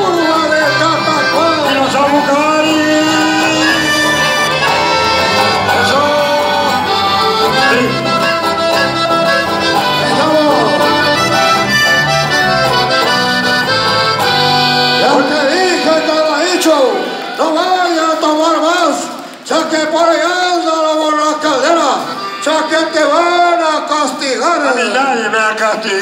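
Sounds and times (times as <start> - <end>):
electric bass: 0.0 - 15.0
acoustic guitar: 0.0 - 17.7
accordions playing melody: 0.0 - 25.3.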